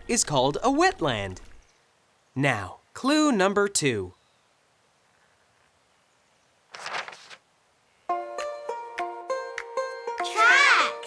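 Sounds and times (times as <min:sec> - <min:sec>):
notebook page turning: 0:06.7 - 0:07.4.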